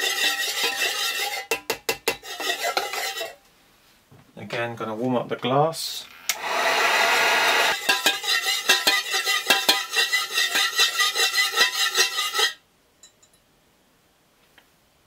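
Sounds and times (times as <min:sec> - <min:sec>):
metal stirrer clinking in pitcher: 0:00.0 - 0:03.4, 0:07.7 - 0:13.4.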